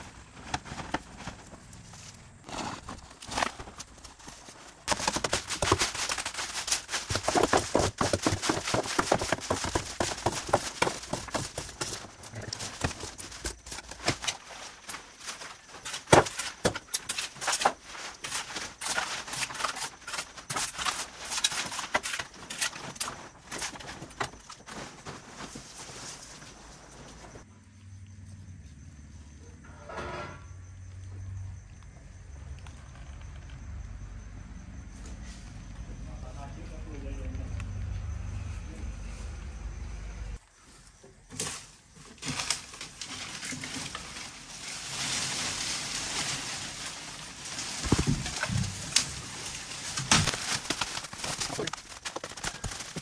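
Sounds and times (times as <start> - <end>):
clattering knocks and scrapes: 0.0 - 27.4, 29.6 - 30.6, 41.3 - 53.0.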